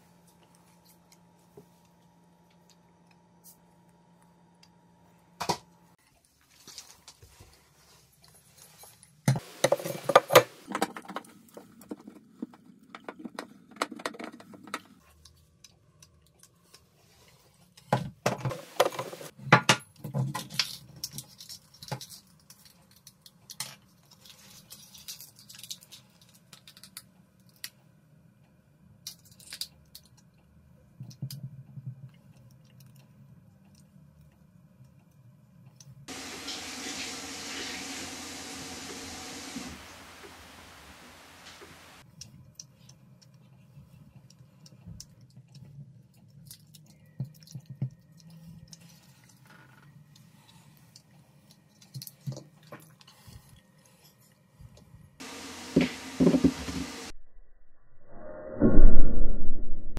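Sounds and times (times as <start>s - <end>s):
steady hiss: 36.1s - 42.0s, 55.2s - 57.1s.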